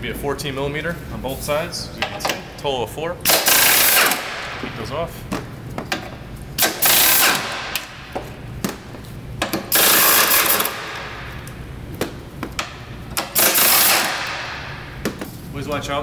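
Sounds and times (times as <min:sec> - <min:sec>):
pneumatic impact wrench: 0:03.3 - 0:04.6, 0:06.6 - 0:08.0, 0:09.4 - 0:11.3, 0:12.7 - 0:15.0.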